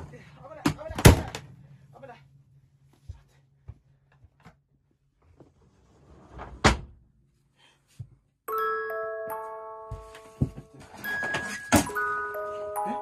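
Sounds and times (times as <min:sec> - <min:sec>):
chiming musical notes: 0:08.5 - 0:13.0.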